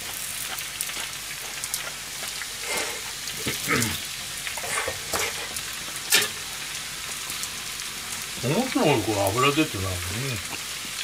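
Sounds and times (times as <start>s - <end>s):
oil sizzling and crackling: 0.0s - 11.0s
spatula scraping a pan: 4.6s - 6.4s.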